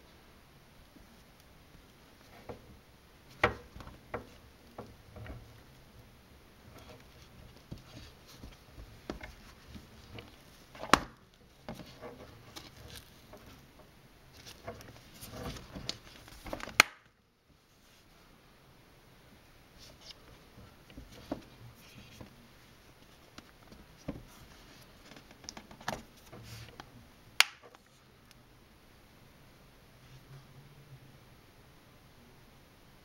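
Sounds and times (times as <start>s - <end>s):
leather wallet rustling: 6.7s - 13.7s, 14.3s - 16.9s.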